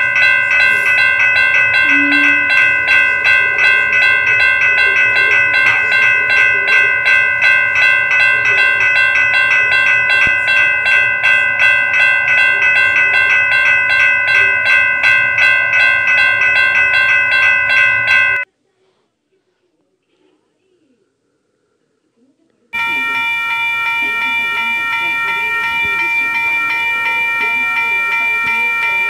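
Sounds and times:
railroad crossing bell ringing: 0:00.0 - 0:18.4, 0:22.8 - 0:29.0.

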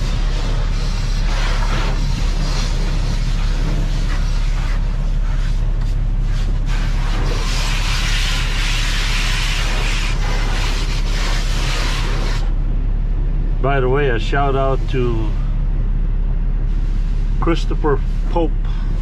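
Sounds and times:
diesel engine idling: 0:00.0 - 0:19.0
pressure washer spray hissing: 0:06.2 - 0:12.5.

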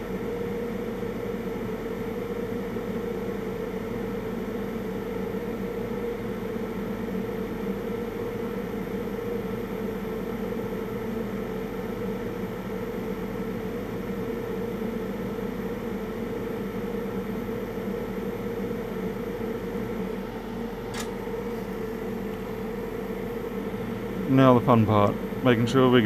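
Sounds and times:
extractor fan humming: 0:11.7 - 0:26.0.

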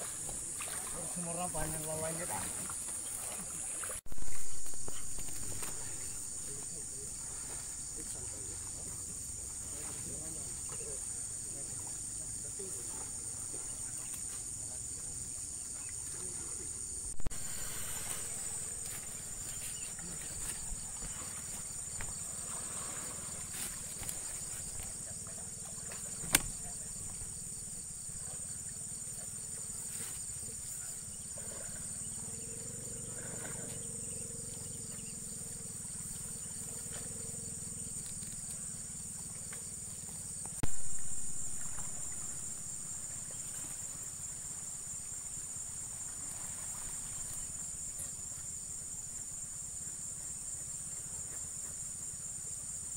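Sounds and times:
loud thump: 0:26.2 - 0:26.6.

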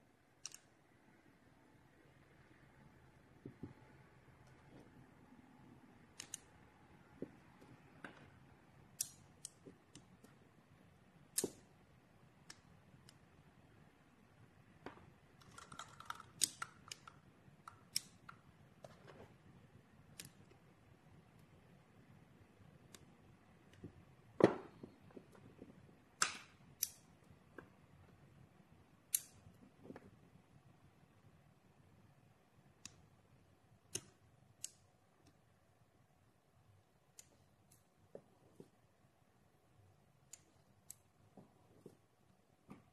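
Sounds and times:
metal balls and magnets clicking: 0:15.4 - 0:18.5.

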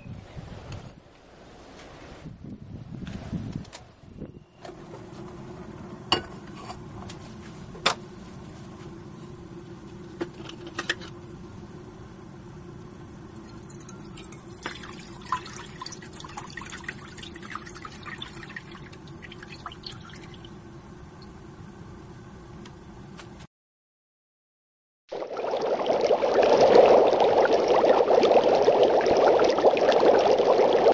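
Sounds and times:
crackling drips: 0:13.4 - 0:20.6
liquid pouring into saucepan: 0:13.5 - 0:20.5.

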